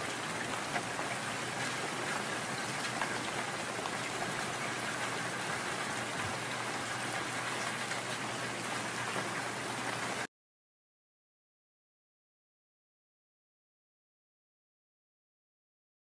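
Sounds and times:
raindrop ticks: 0.0s - 8.3s
steady rain hiss: 0.0s - 10.3s.

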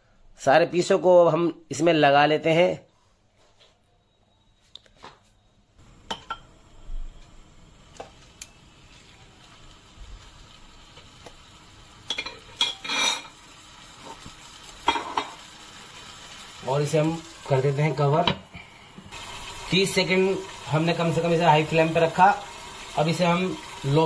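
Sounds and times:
oil sizzling: 5.8s - 24.0s
metal utensils scraping frying pan: 12.1s - 13.4s.

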